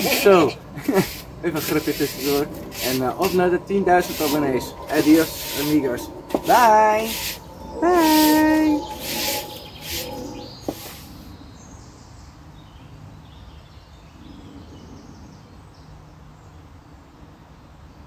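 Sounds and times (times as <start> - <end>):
faint bird chirps: 4.4 - 11.7.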